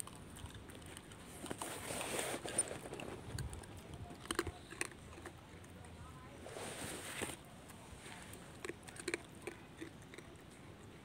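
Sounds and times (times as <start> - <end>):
monkey chewing hard food: 0.0 - 5.8, 8.3 - 10.9
soft rustling: 1.2 - 3.8, 6.2 - 8.6.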